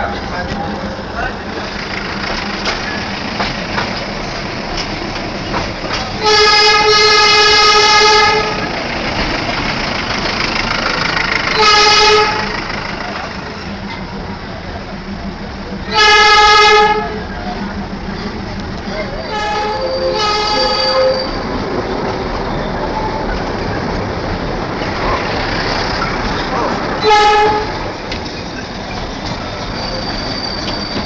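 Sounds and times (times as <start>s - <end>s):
moving train running noise: 0.0s - 31.0s
train horn blasts: 6.2s - 8.7s, 11.5s - 12.6s, 15.9s - 17.2s, 19.2s - 21.4s, 27.0s - 27.8s.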